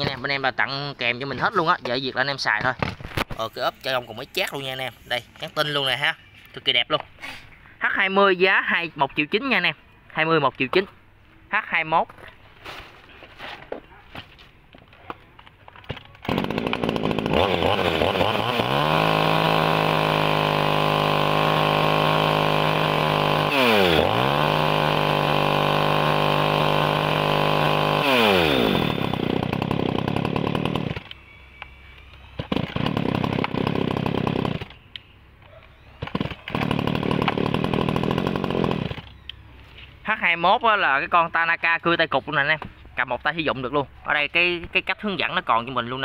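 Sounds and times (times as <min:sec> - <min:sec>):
chainsaw running: 0:16.2 - 0:31.2, 0:32.4 - 0:34.8, 0:36.0 - 0:39.2.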